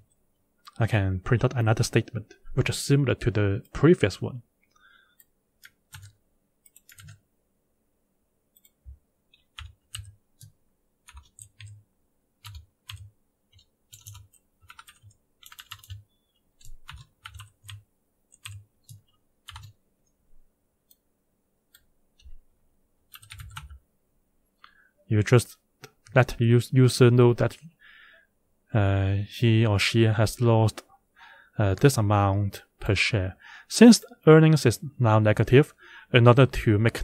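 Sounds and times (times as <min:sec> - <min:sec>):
typing on computer keyboard: 0:05.6 - 0:07.2, 0:09.4 - 0:10.5, 0:11.1 - 0:11.8, 0:12.4 - 0:16.0, 0:16.6 - 0:19.8, 0:23.1 - 0:23.8.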